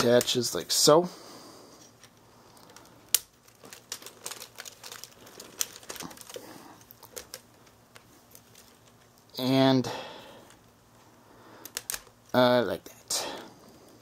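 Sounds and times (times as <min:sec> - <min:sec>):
plastic parts clicking and rattling: 0:01.9 - 0:09.3, 0:11.6 - 0:12.2.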